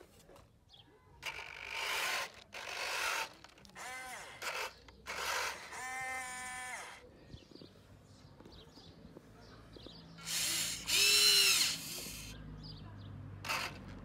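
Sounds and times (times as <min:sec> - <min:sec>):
small electric motor whine: 0:10.2 - 0:12.4.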